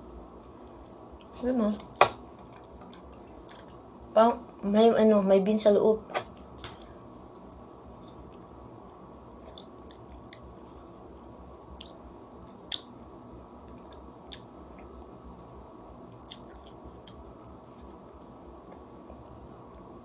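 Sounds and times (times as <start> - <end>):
low room hum: 0.0 - 20.0
lip smacks and licking: 9.4 - 10.5, 16.1 - 17.2.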